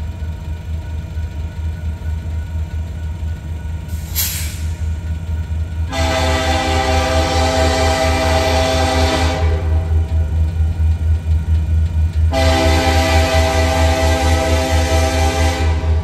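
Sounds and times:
low diesel rumble: 0.0s - 16.0s
locomotive air horn blasts: 5.9s - 10.1s, 12.3s - 16.0s.

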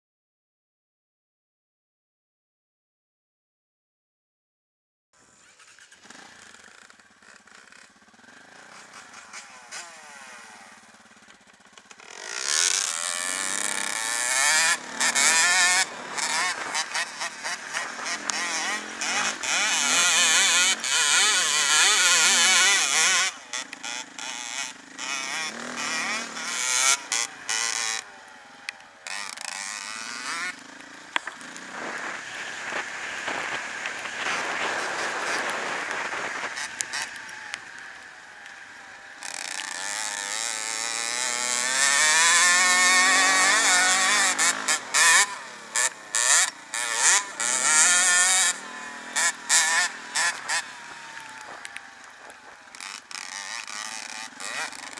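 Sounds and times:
motorcycle engine revving: 5.2s - 54.9s.

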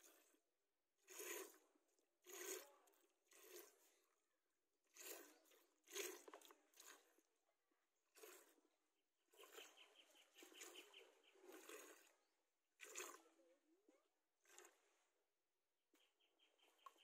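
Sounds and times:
milk squirting into plastic bowl: 4.9s - 7.3s, 12.8s - 13.3s.

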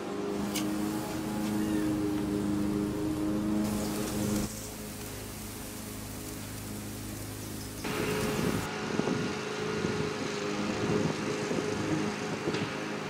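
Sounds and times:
distant lawn mower engine: 0.0s - 13.0s
meat sizzling on a grill: 0.3s - 8.7s.

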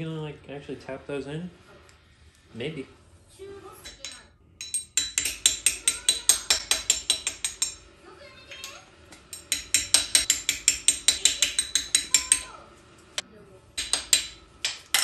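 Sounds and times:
hammer tapping on metal: 3.8s - 7.9s, 8.5s - 12.6s, 13.8s - 15.0s.

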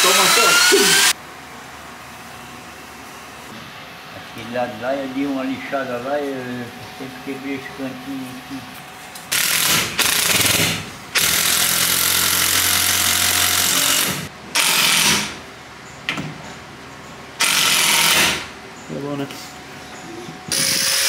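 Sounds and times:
cordless drill boring into wood: 0.0s - 1.1s, 9.3s - 10.6s, 11.2s - 15.3s, 17.4s - 18.4s, 20.5s - 21.0s.

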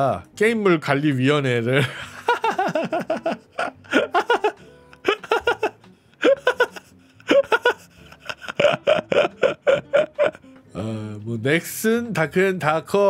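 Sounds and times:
man laughing: 1.8s - 10.5s.

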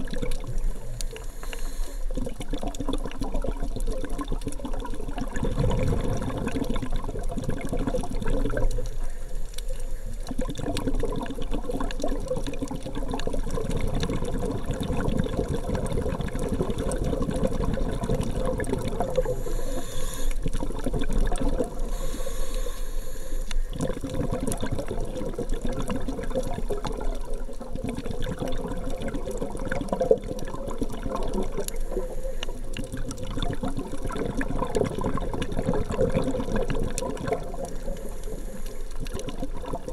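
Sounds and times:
muffled underwater rush: 0.0s - 39.9s
bright hiss: 19.3s - 20.4s.

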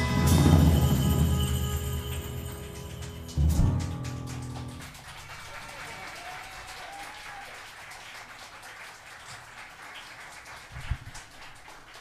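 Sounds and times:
band song ending: 0.0s - 4.6s
audience clapping: 2.0s - 12.0s.

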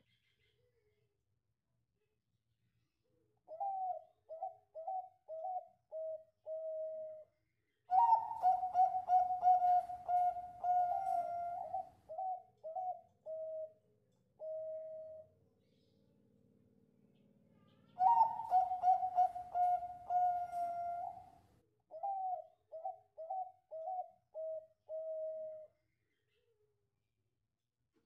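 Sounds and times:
dove cooing: 3.5s - 7.3s, 7.9s - 13.8s, 14.4s - 15.3s, 17.8s - 25.7s.

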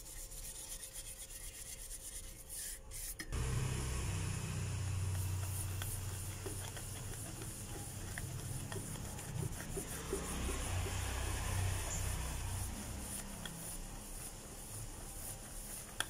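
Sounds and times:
steady low hum: 3.3s - 16.0s
cloth wiping brass plate: 5.1s - 16.0s.

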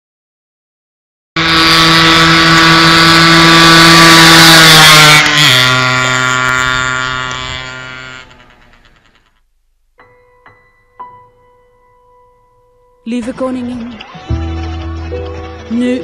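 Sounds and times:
motor vehicle passing close by: 1.4s - 9.3s.

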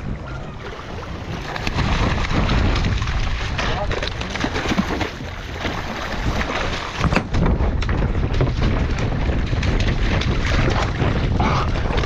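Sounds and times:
water along boat hull: 0.0s - 12.0s
wind rumbling on microphone: 0.0s - 12.0s.

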